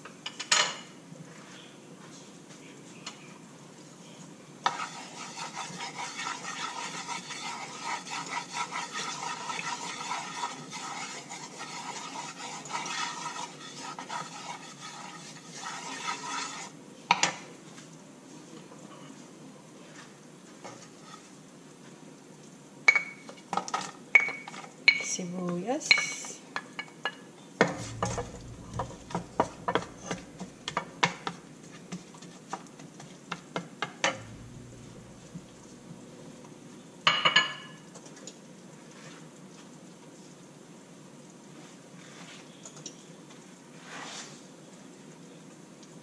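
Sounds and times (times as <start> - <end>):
wooden spatula scraping a wok: 4.6 - 16.8, 20.8 - 21.4, 27.7 - 32.5, 34.1 - 36.3, 43.8 - 44.4
spatula knock: 27.7 - 31.4.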